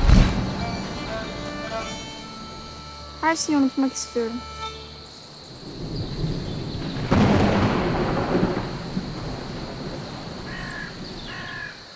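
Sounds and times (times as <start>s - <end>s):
thunder rumbling: 0.0s - 2.0s, 5.5s - 11.7s
rain: 0.0s - 4.0s, 5.0s - 11.9s
crow cawing: 10.4s - 11.9s.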